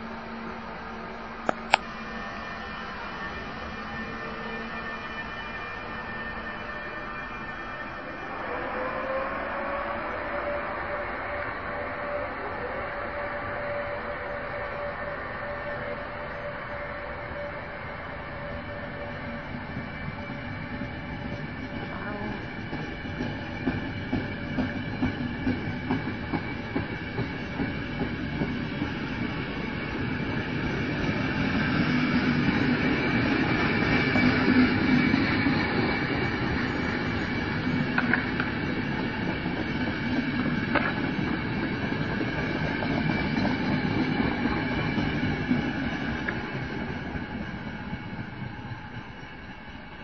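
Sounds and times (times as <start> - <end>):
train wheels clacking over rail joints: 21.9 - 29.3, 37.5 - 47.4.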